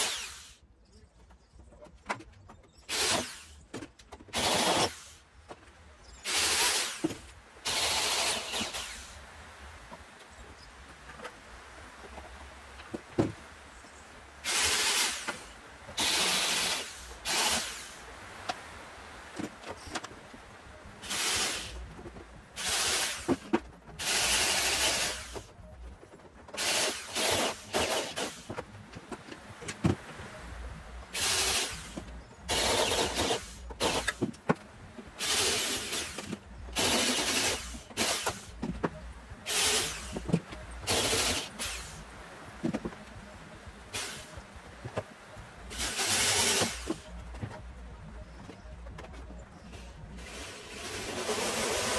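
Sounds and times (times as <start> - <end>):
drill boring through steel: 0.0 - 0.5, 6.3 - 7.0, 7.7 - 9.1, 16.0 - 17.8, 24.0 - 25.4, 31.2 - 31.8, 32.5 - 34.2, 36.8 - 38.4.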